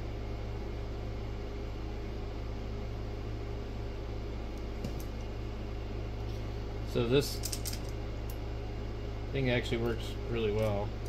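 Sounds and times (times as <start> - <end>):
machine hum and hiss: 0.0 - 11.0
metal connectors clicking: 7.4 - 8.4.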